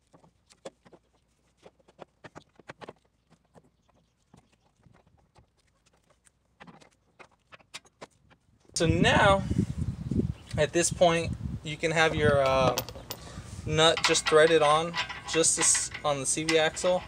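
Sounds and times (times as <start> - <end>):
metal parts clicking and knocking: 12.4 - 17.0.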